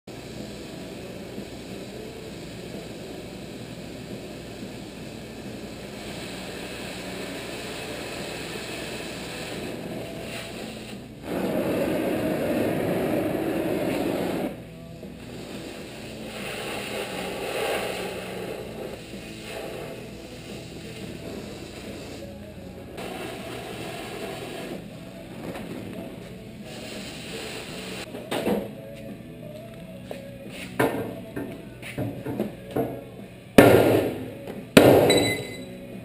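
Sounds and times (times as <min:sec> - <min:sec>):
cutting torch gas rushing: 0:00.1 - 0:24.9, 0:25.5 - 0:28.1.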